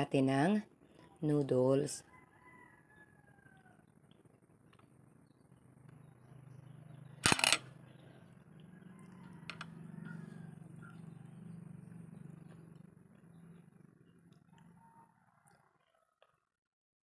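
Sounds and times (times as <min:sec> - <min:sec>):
light clicks of shells: 0:07.2 - 0:07.7.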